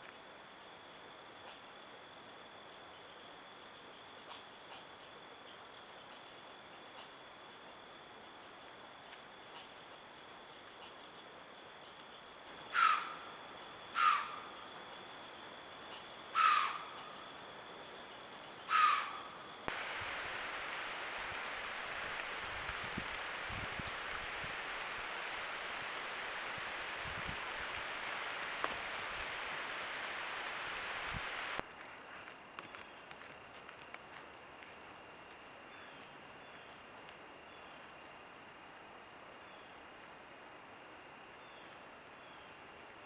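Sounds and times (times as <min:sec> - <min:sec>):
crickets chirping: 0:00.0 - 0:42.6
steady hiss: 0:03.6 - 0:32.2
harsh animal calls: 0:12.6 - 0:13.3, 0:13.9 - 0:14.5, 0:15.9 - 0:17.1, 0:18.7 - 0:19.4.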